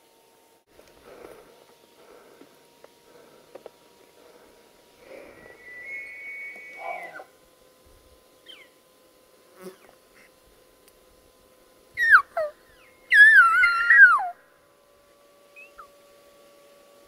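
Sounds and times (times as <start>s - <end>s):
elk bugling: 5.1s - 7.4s.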